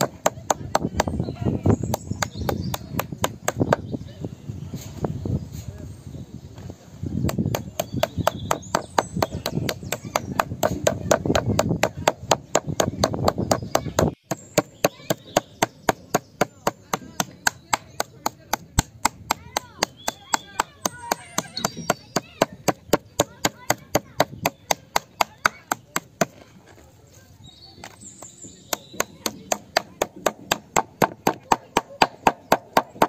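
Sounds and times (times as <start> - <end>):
chopping on a board: 0.0 - 1.2, 7.2 - 26.4, 28.7 - 33.0.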